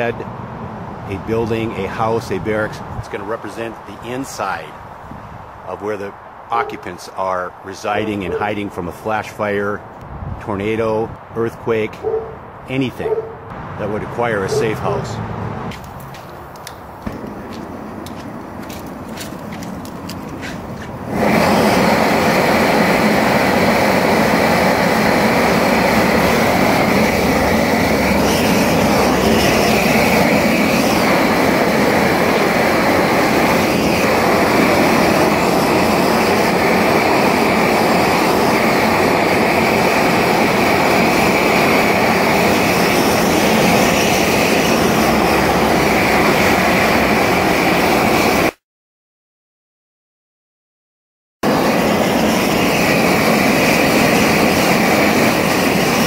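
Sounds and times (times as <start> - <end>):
torch flame rushing: 13.5 - 48.6, 51.4 - 56.0
torch lighting: 15.7 - 48.6, 51.5 - 56.0.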